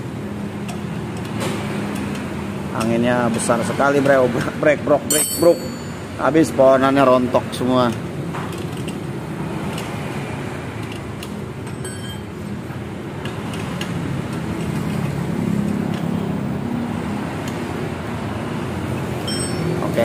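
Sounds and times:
wrench clicking on bolts: 0.6 - 3.1, 13.2 - 16.2.

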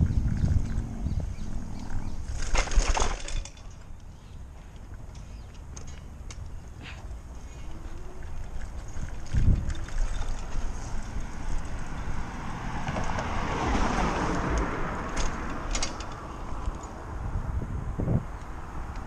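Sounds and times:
wind buffeting microphone: 0.0 - 2.5, 8.0 - 19.0
tyres rumbling on pavement: 0.0 - 3.9, 7.8 - 17.5.

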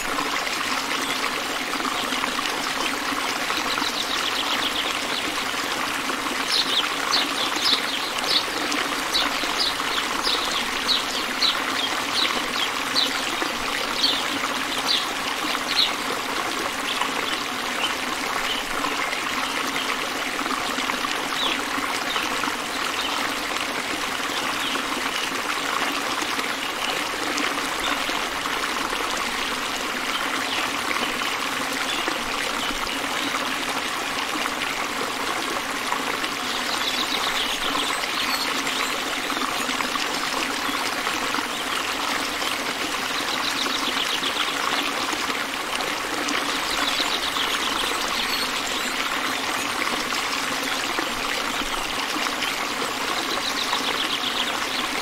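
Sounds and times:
running water: 0.0 - 55.0
birds singing: 2.8 - 16.2, 36.4 - 42.4, 43.0 - 44.8, 46.3 - 50.9, 51.5 - 55.0.

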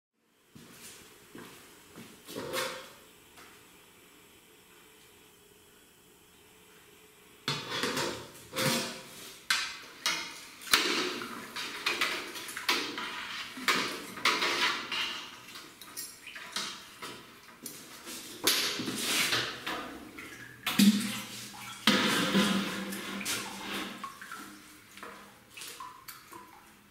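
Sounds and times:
paddle scraping pot: 7.5 - 9.2, 10.8 - 16.8, 21.0 - 24.2
metal pots clanking: 10.0 - 17.3, 21.8 - 24.2.

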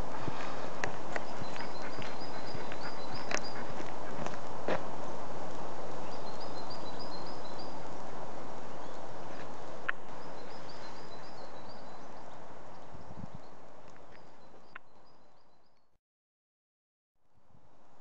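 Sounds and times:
woodland ambient noise: 0.0 - 16.0
small bird chirping: 1.1 - 4.1, 10.0 - 15.9.

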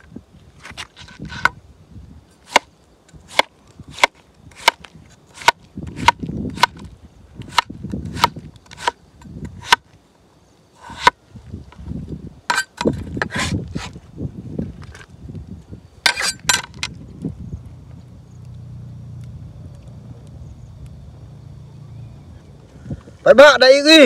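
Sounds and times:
cleaver chopping on cutting board: 7.5 - 9.0.

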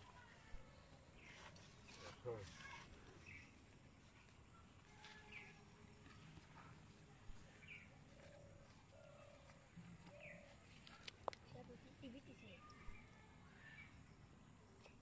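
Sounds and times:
faint bird chirps: 12.0 - 15.0.

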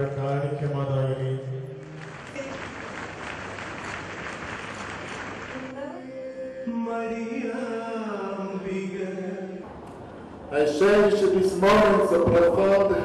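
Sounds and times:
chant-like singing: 5.7 - 9.7.

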